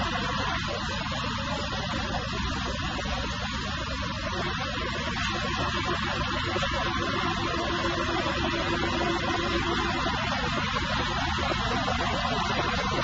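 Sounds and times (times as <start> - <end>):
faint machine whine: 0.0 - 13.0.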